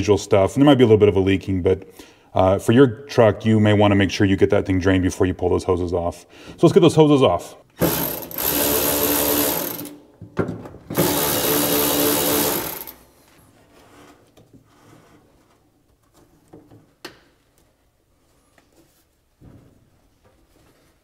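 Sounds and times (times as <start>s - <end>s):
cordless power tool spinning: 7.8s - 10.0s, 11.0s - 13.0s.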